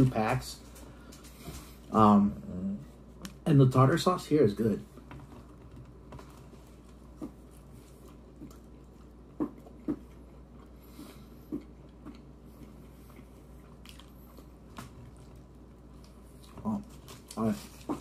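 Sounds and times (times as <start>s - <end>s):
person chewing: 6.4s - 18.0s.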